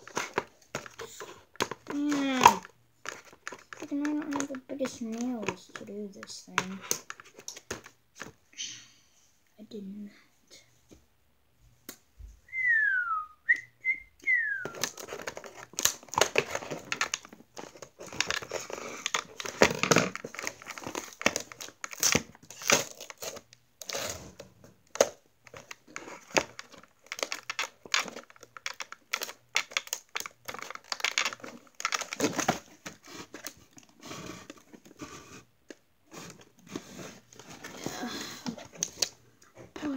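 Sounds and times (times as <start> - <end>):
packaging crinkling and tearing: 0.0 - 5.8, 14.6 - 39.2
person whistling: 12.4 - 14.8.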